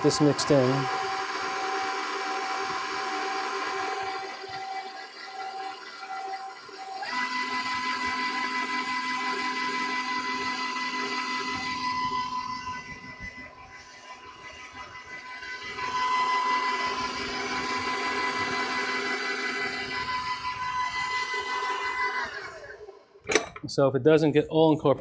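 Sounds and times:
stand mixer motor whine: 0:00.0 - 0:23.4.

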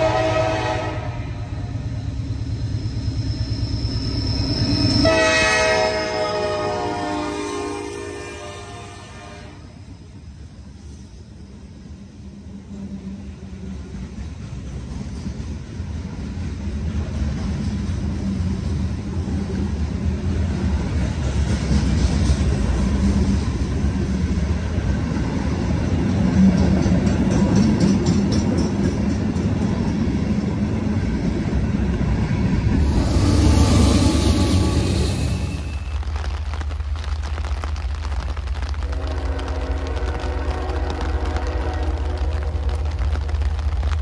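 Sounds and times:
train wheels rumbling on rail: 0:00.0 - 0:44.0.

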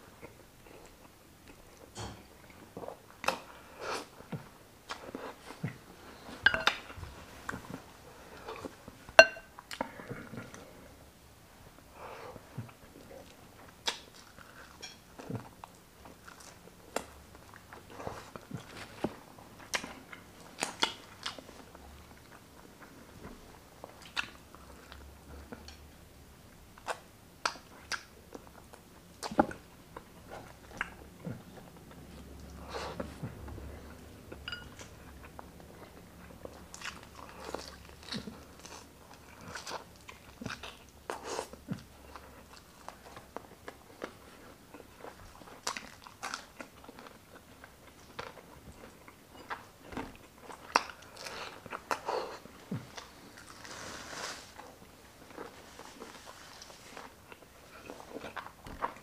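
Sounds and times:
man chewing and lip smacking: 0:12.4 - 0:23.0, 0:26.8 - 0:53.6.

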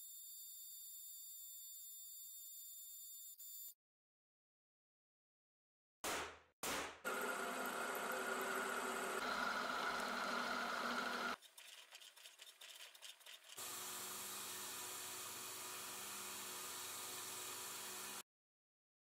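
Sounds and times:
belt grinder humming: 0:07.1 - 0:11.4
drill boring into metal: 0:07.1 - 0:11.4.

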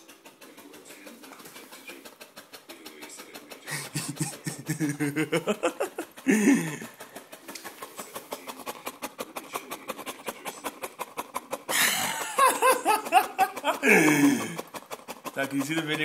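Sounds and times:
dog panting: 0:00.0 - 0:16.0.

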